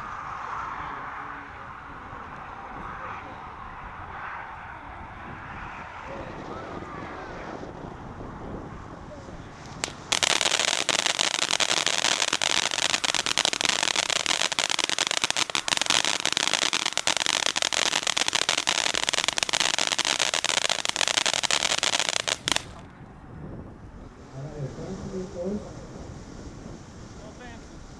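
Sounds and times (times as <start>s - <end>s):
firework fountain crackling: 8.7s - 23.0s, 24.2s - 27.9s
firework hiss: 9.2s - 22.9s, 24.2s - 27.9s.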